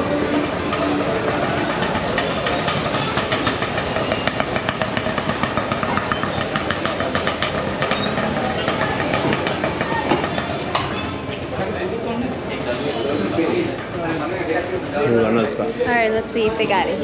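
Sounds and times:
fast clicks and clatter: 0.0s - 10.6s
people murmuring: 0.0s - 17.0s
traffic din: 0.0s - 17.0s.

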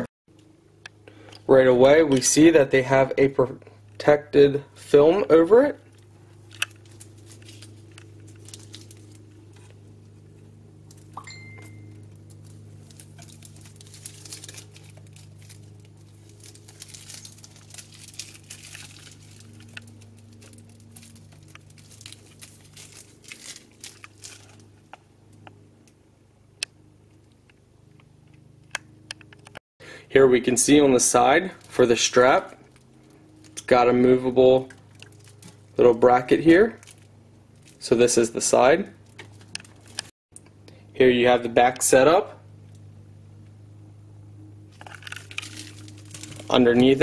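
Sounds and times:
steady low hum: 0.0s - 47.0s
plastic film crinkling and tearing: 6.0s - 10.1s, 11.9s - 25.0s, 34.8s - 35.8s, 36.6s - 37.9s, 39.0s - 40.1s, 44.7s - 47.0s.

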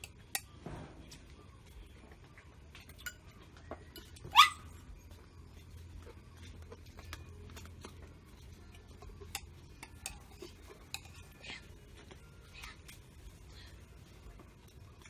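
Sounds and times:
spoon clinking on a plate: 2.8s - 4.3s, 8.8s - 11.5s
dog yelping: 4.3s - 4.8s.

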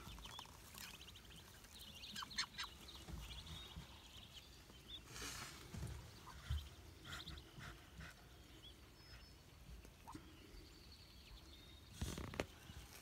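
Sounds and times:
rustle: 0.0s - 6.7s, 11.8s - 13.0s
ducklings peeping: 0.0s - 13.0s.

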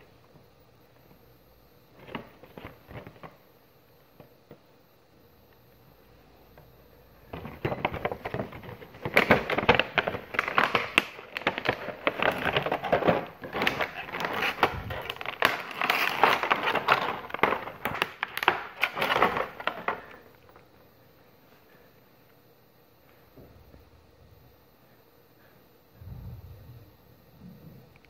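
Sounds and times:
plastic blister tray crinkling: 7.3s - 20.6s.

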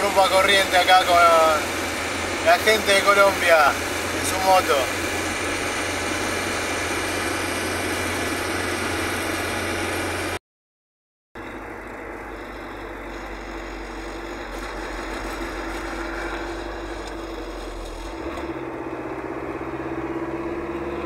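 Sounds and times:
diesel bus engine drone: 0.0s - 10.4s, 11.4s - 21.0s
road noise: 0.0s - 10.4s, 11.4s - 21.0s.

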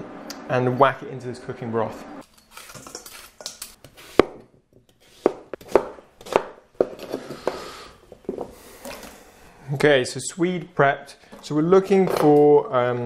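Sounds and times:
knife chopping on board: 5.2s - 6.6s.

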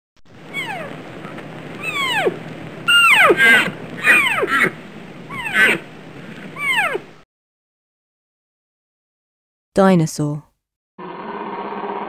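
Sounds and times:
deer squealing calls: 0.5s - 5.9s, 6.5s - 7.1s.

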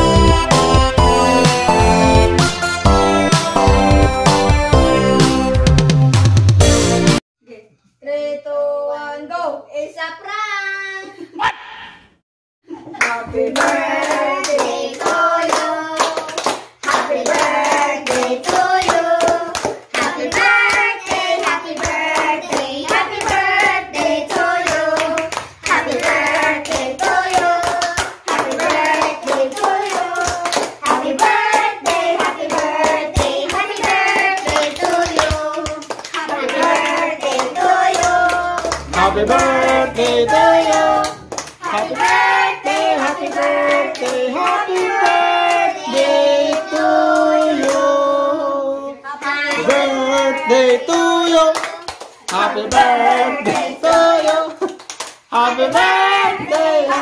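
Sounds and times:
people clapping: 13.0s - 47.9s, 49.2s - 57.0s
women and children singing: 13.0s - 54.7s, 55.3s - 57.0s.

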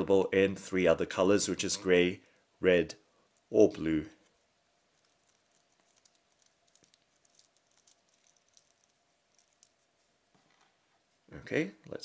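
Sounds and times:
faint steady hum: 0.0s - 12.0s
earphone cable rustling: 4.2s - 10.8s.

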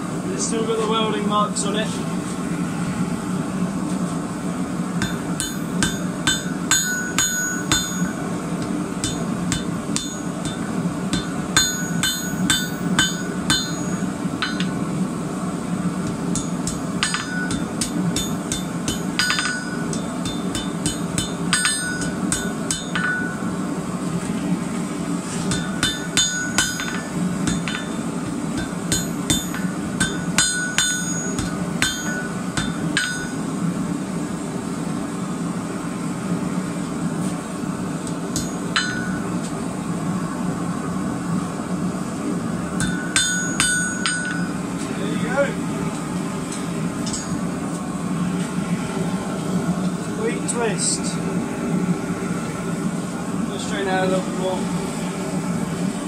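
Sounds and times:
steady low hum: 0.0s - 56.0s
anvil ringing: 5.0s - 8.3s, 9.0s - 14.8s, 16.3s - 23.6s, 25.5s - 33.4s, 38.3s - 39.4s, 42.8s - 44.6s
hammer striking hot metal: 5.0s - 15.0s, 15.9s - 23.6s, 25.4s - 33.5s, 38.0s - 39.6s, 42.8s - 44.6s, 46.5s - 47.5s.

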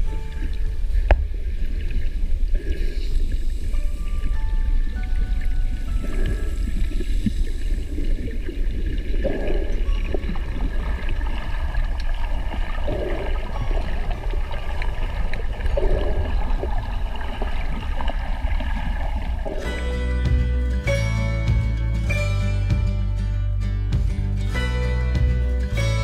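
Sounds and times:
water gurgling and bubbling: 0.0s - 20.2s
underwater low rumble: 0.0s - 22.2s.

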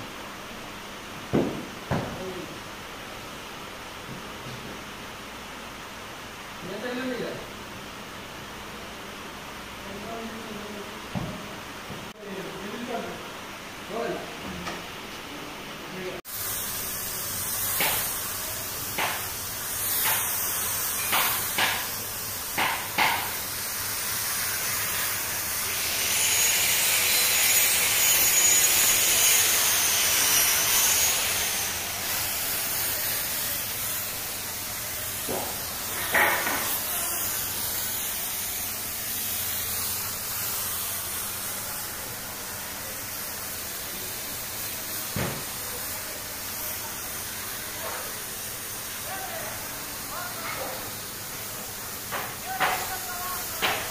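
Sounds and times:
spray gun hissing: 16.2s - 53.9s.

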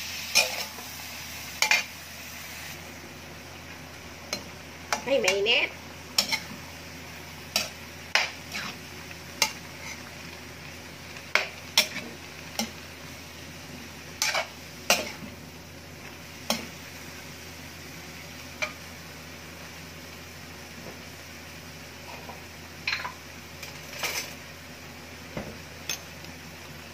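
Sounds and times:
metal spatula scraping wok: 0.0s - 2.8s, 4.3s - 6.7s, 7.5s - 8.8s, 9.4s - 10.1s, 11.3s - 12.8s, 14.2s - 15.3s.

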